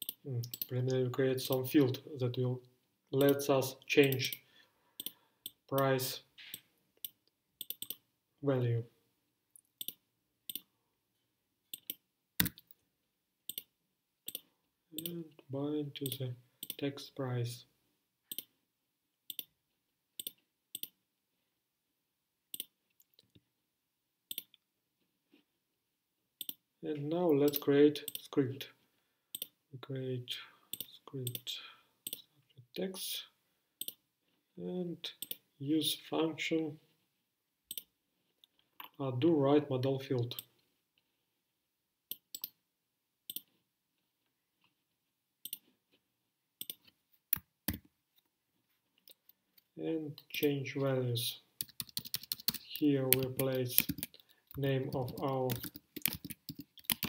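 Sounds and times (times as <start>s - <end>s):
computer mouse clicks: 0.0s - 0.7s, 4.0s - 4.4s, 5.0s - 5.9s, 6.5s - 8.0s, 9.8s - 10.7s, 11.7s - 12.8s, 13.5s - 13.7s, 14.3s - 15.2s, 18.3s - 18.5s, 19.3s - 19.5s, 20.2s - 21.0s, 22.5s - 22.7s, 24.3s - 24.6s, 26.4s - 26.6s, 29.3s - 29.6s, 30.7s - 32.3s, 37.7s - 37.9s, 43.3s - 43.6s, 45.4s - 45.7s, 46.6s - 47.8s, 51.6s - 57.0s
keyboard clicks: 6.5s - 8.0s, 46.6s - 47.9s, 51.6s - 57.0s.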